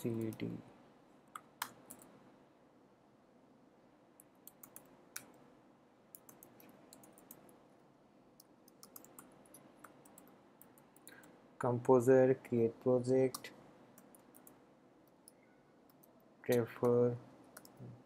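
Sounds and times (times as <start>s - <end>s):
keystrokes on computer keyboard: 1.3s - 2.1s, 4.2s - 5.4s, 6.1s - 7.6s, 8.4s - 11.3s, 13.3s - 17.9s.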